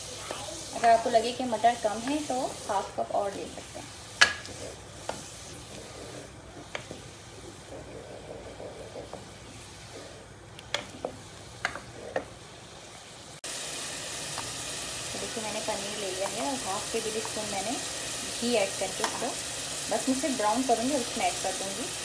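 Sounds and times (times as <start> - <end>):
faint steady sizzle: 0.0 - 22.0
spoon stirring gravy in a pot: 0.6 - 12.3.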